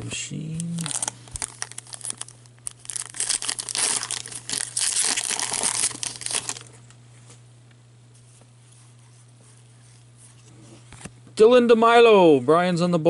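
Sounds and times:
foil wrapper crinkling and tearing: 0:00.6 - 0:06.8.

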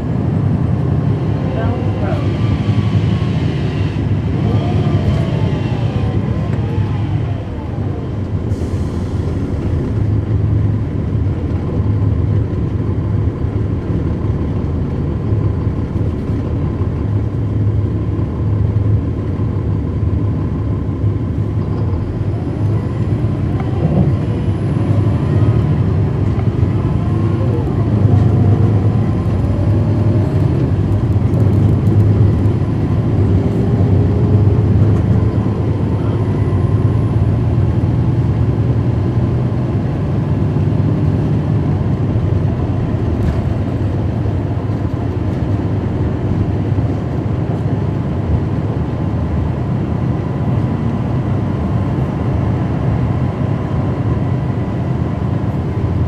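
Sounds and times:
bus diesel engine drone: 0:00.0 - 0:56.0
faint rising whines: 0:02.2 - 0:11.3.

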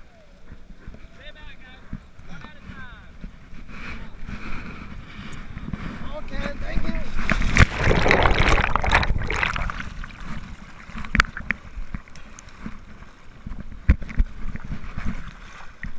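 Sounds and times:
seawater sloshing and splashing: 0:07.1 - 0:15.9.

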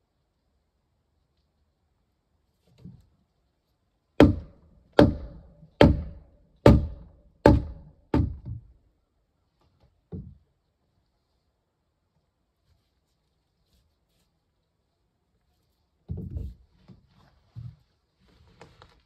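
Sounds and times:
heavy blows on timber: 0:04.2 - 0:08.7.

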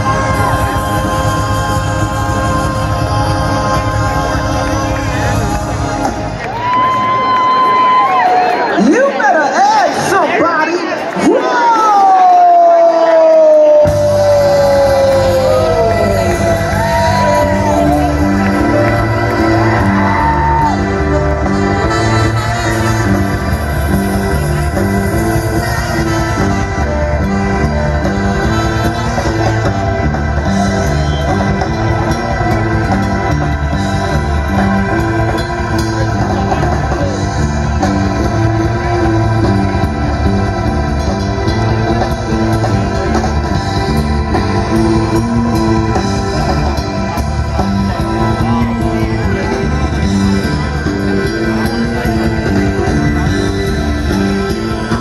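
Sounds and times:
person singing: 0:00.0 - 0:07.0, 0:13.5 - 0:39.6
bass line: 0:00.0 - 0:07.3, 0:13.8 - 0:55.0
guitar: 0:00.0 - 0:08.9, 0:10.9 - 0:55.0
live band playing: 0:00.0 - 0:55.0.

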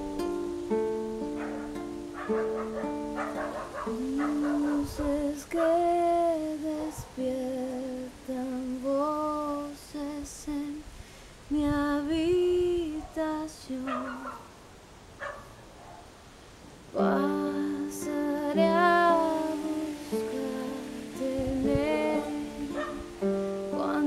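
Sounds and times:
classical guitar: 0:00.0 - 0:10.2, 0:17.0 - 0:24.0
woman singing with vibrato: 0:03.8 - 0:14.5, 0:17.0 - 0:24.0.

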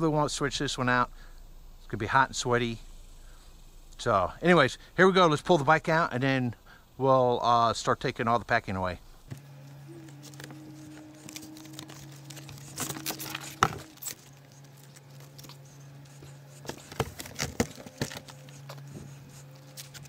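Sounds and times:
steady low hum: 0:00.0 - 0:20.0
packaging rustling and scraping: 0:09.4 - 0:20.0.

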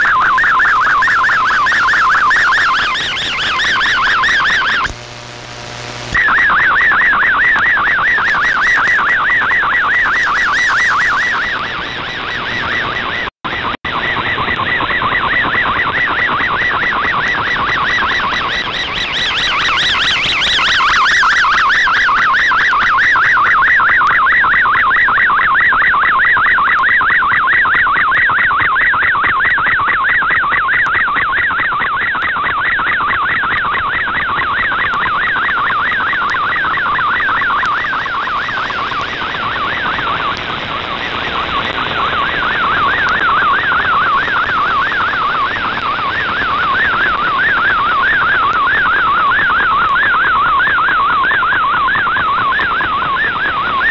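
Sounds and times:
radio band hiss: 0:00.0 - 0:21.5, 0:36.0 - 0:51.0
warbling data tones: 0:00.0 - 0:53.9.

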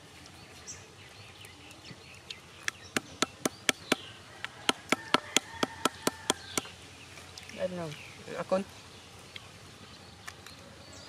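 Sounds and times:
bamboo tube knocking on nuts: 0:02.7 - 0:04.0, 0:04.6 - 0:06.7.

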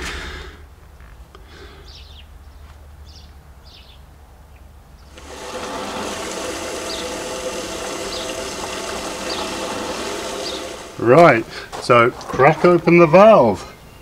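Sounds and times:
water rushing into rain barrel: 0:05.1 - 0:11.7.

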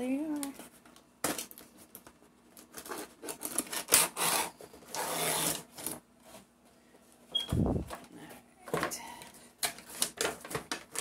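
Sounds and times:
cardboard box scraping: 0:04.0 - 0:05.8.

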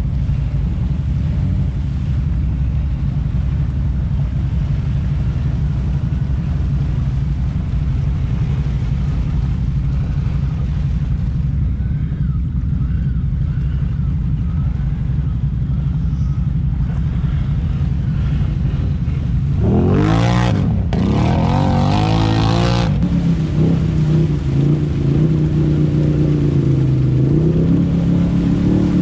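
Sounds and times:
atv engines rumbling: 0:00.0 - 0:29.0
engine revving hard: 0:19.6 - 0:25.5.

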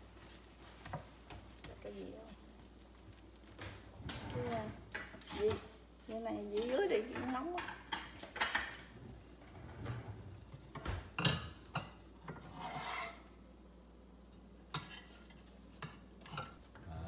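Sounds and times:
spatula knocking in frying pan: 0:06.6 - 0:08.9.

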